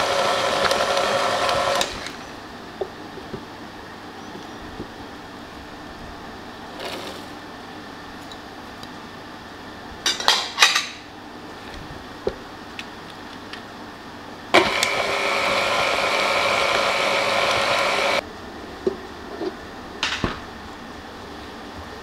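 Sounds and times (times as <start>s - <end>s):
stand mixer motor whining: 0.0s - 2.3s, 14.6s - 18.2s
mixer head clunking: 14.6s - 18.2s.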